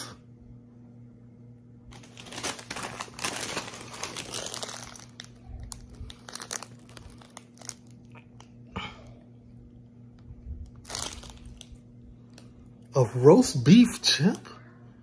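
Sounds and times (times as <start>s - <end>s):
crisp packet crinkling: 1.9s - 8.6s, 10.6s - 12.9s.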